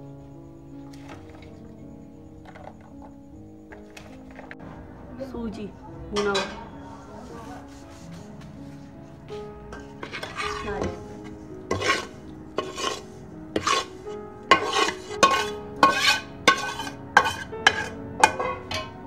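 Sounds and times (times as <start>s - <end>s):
metal spoon scraping steel bowl: 9.8s - 19.0s.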